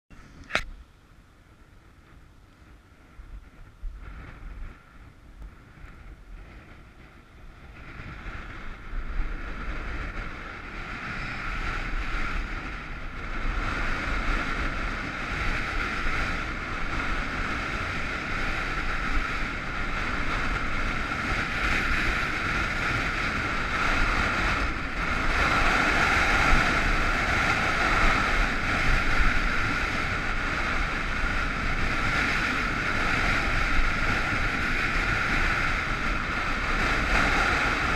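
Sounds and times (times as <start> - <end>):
wind buffeting microphone: 0.1 - 37.9
skis scraping over snow: 7.7 - 37.9.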